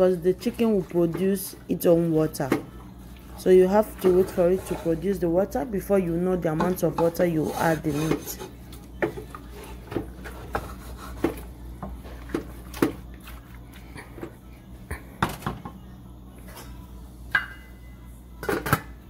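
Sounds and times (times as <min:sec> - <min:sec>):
wooden spoon scraping pot: 0:03.4 - 0:05.3, 0:06.7 - 0:11.5.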